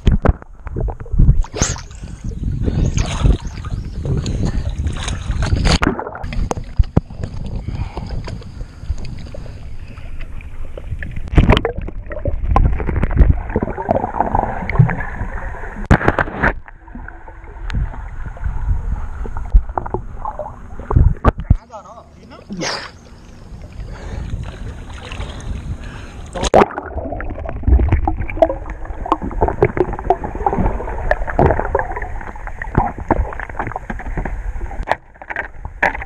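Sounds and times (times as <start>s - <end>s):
water sloshing and rumbling: 0.0s - 36.0s.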